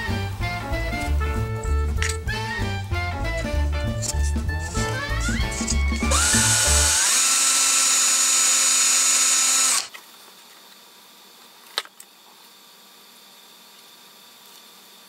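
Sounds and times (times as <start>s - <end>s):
power drill whining: 4.7s - 9.9s.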